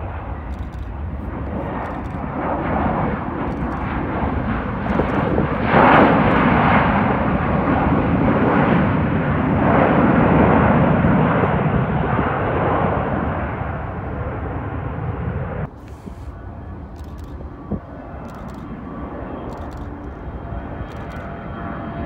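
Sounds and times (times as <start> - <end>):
jet engines roaring: 0.0 - 22.0.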